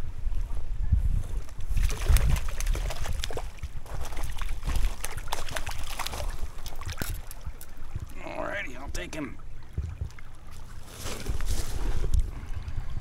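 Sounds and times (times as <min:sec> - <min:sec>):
fish splashing in water: 0:01.7 - 0:08.2.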